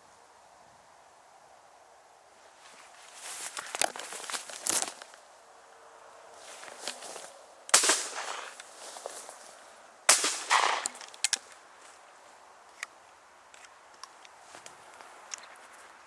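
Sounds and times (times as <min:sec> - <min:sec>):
shotgun shots with echo: 0:07.7 - 0:08.6, 0:10.1 - 0:11.0.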